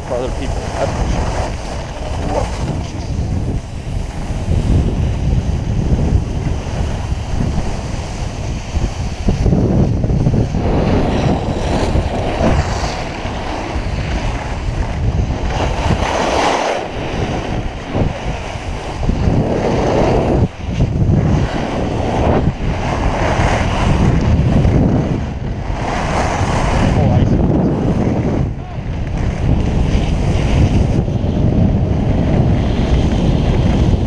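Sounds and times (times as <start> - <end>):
skis scraping over snow: 0.0 - 34.0
wind noise on microphone: 0.0 - 34.0.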